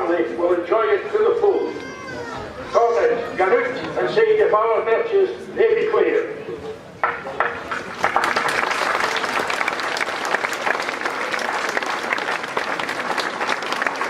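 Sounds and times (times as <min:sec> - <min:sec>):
crowd applauding: 0:07.7 - 0:14.0.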